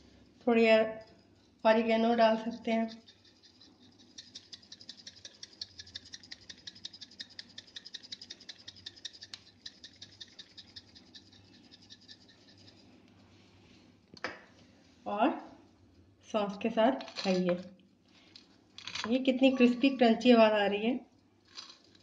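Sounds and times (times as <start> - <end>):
spice grinder ratcheting clicks: 2.9 - 11.4.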